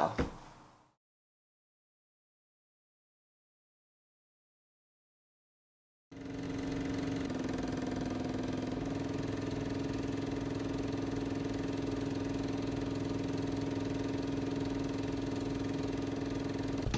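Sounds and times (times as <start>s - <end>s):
film projector whirring and clattering: 6.2s - 16.9s.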